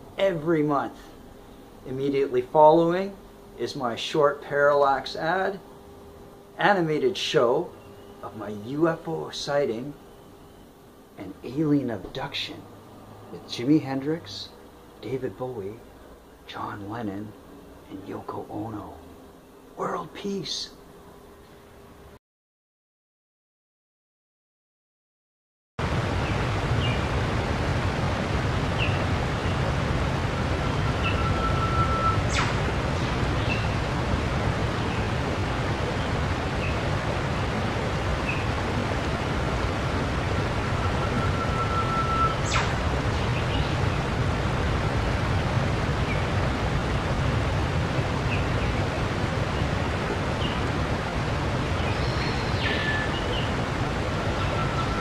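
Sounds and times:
steady rushing noise: 0:25.8 - 0:55.0
whistled notes: 0:30.8 - 0:32.5, 0:40.8 - 0:42.7.

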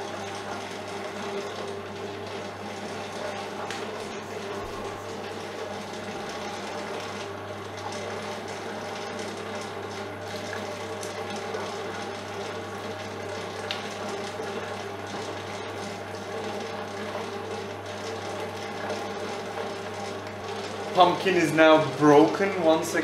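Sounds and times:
mixer motor hum: 0:00.0 - 0:23.0.

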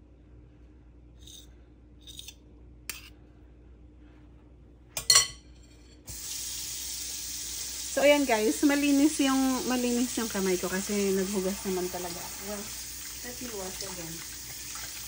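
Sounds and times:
metal spoons tapping and scraping: 0:05.0 - 0:06.0
steady hiss: 0:06.1 - 0:15.0.

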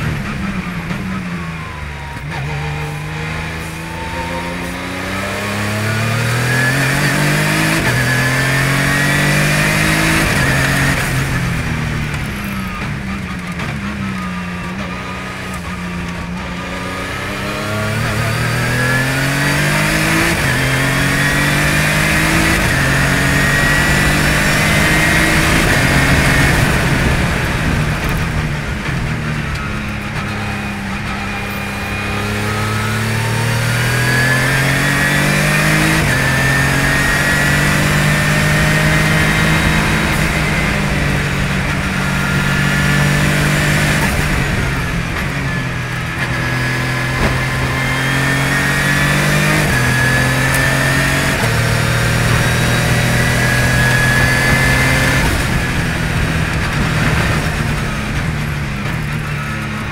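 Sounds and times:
high whine: 0:00.0 - 0:19.9
race car engine accelerating: 0:00.0 - 0:59.9.

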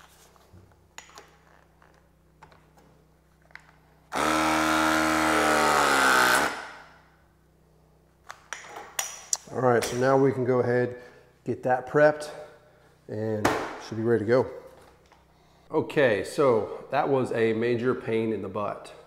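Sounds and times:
press tool motor running: 0:04.1 - 0:06.8.

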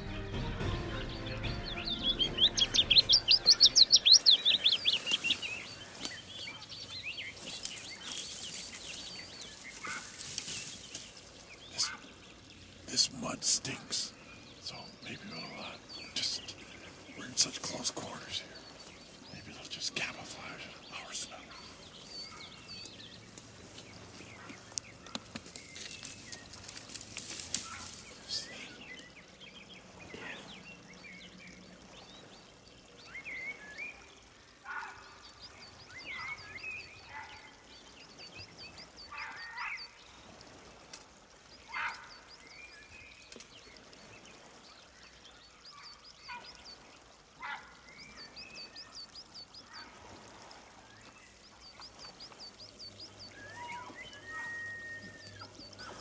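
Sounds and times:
dry brush rustling and crackling: 0:04.0 - 0:12.0, 0:16.9 - 0:28.7
geese honking faintly: 0:09.6 - 0:10.2, 0:11.7 - 0:12.2
faint high chirping: 0:51.0 - 0:56.0.

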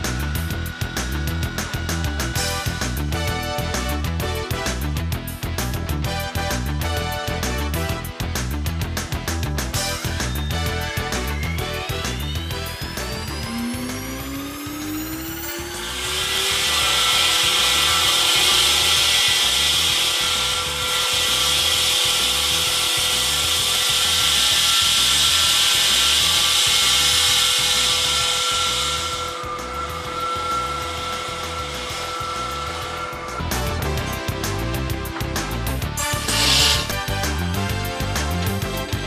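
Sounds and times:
background music with a beat: 0:00.0 - 0:16.8, 0:29.2 - 0:39.0
saw blade grinding concrete: 0:08.9 - 0:39.0.

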